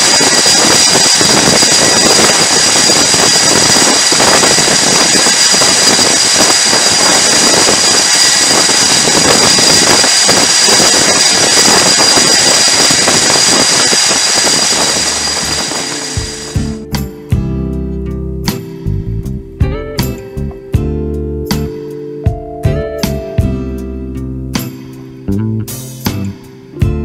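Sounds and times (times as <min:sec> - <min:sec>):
jet engines roaring: 0:00.0 - 0:16.8
high-pitched whine: 0:00.0 - 0:17.8.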